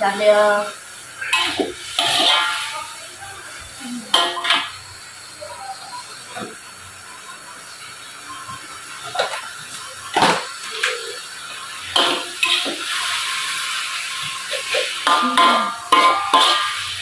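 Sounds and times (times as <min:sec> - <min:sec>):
spatula scraping wok: 0:00.0 - 0:05.0, 0:08.8 - 0:17.0
greens sizzling in a wok: 0:00.0 - 0:17.0
metal spatula clanking on wok: 0:01.2 - 0:02.8, 0:04.1 - 0:04.8, 0:11.9 - 0:12.9, 0:14.5 - 0:17.0.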